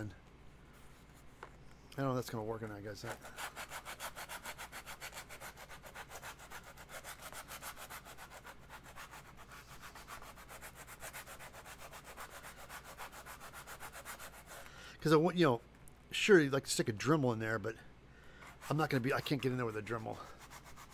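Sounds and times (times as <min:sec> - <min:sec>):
abrasive scrubbing foam: 0:03.2 - 0:14.5.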